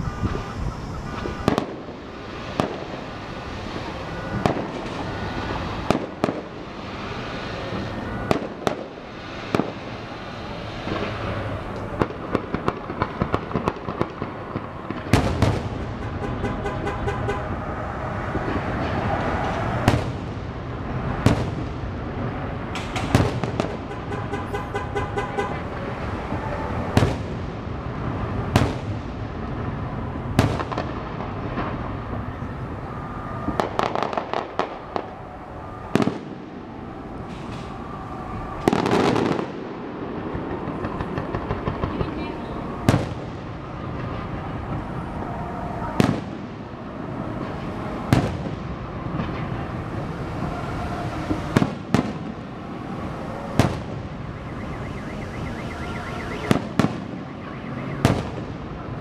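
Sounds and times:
car alarms: 0.0s - 1.7s, 2.8s - 8.6s, 54.2s - 58.4s
firework shells booming: 1.1s - 17.5s, 18.3s - 20.5s, 21.1s - 21.9s, 22.7s - 25.7s, 26.9s - 27.6s, 33.4s - 35.2s, 35.9s - 38.0s, 38.6s - 44.9s, 47.4s - 49.6s, 51.3s - 52.5s, 53.5s - 54.8s, 56.2s - 58.7s.

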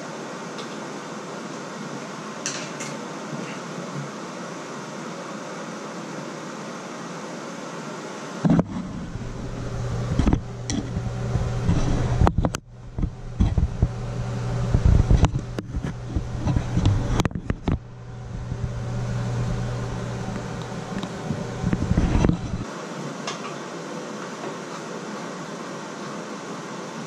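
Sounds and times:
steady low hum: 8.4s - 22.7s.

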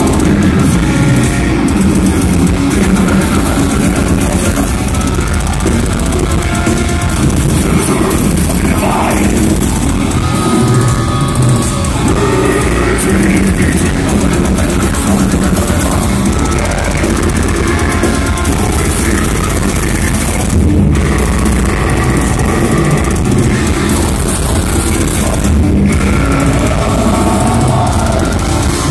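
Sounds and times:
bass: 0.0s - 28.9s
distorted guitars: 0.0s - 28.9s
pounding drums: 0.0s - 28.9s
vocalist: 0.0s - 28.9s.

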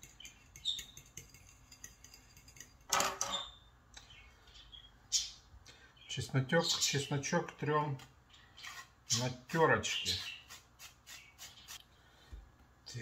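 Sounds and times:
fork clinking against ceramic bowl: 0.0s - 3.5s.

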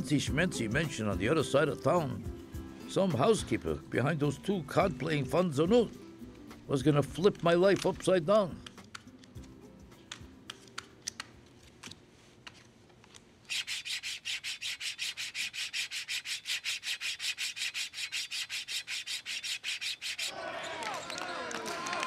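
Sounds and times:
playing cards being dealt: 7.4s - 14.8s
hacksaw cutting: 13.5s - 20.3s.

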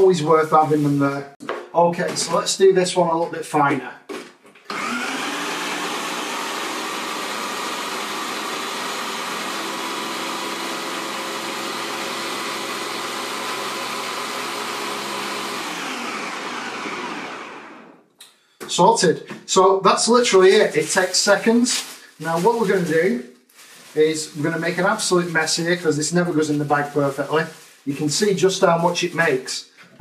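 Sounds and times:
blender motor running: 4.7s - 18.1s.

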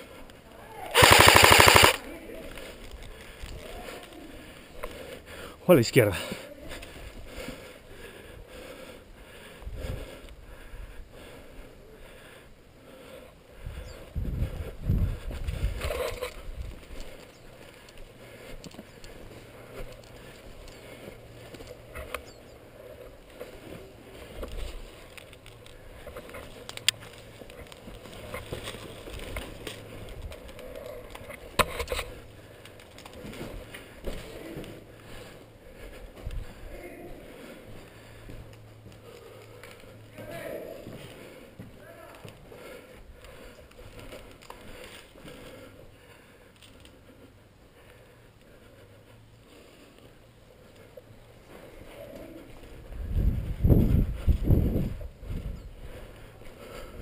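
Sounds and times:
footsteps on dirt and brick: 14.9s - 36.6s, 37.4s - 45.9s.

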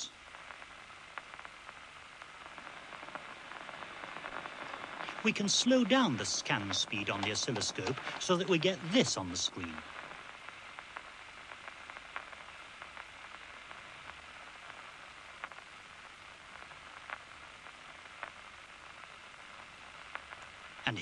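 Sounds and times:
loudspeaker hiss: 0.0s - 15.4s, 20.6s - 21.0s.

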